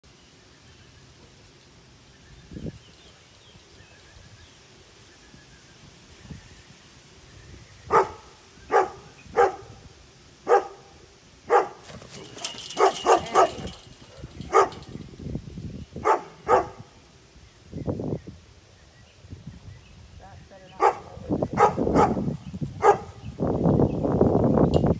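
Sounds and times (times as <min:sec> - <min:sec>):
dog barking: 0:07.9 - 0:09.7, 0:10.5 - 0:10.9, 0:11.5 - 0:11.8, 0:12.8 - 0:14.8, 0:16.0 - 0:16.8, 0:20.8 - 0:22.2, 0:22.8 - 0:23.2.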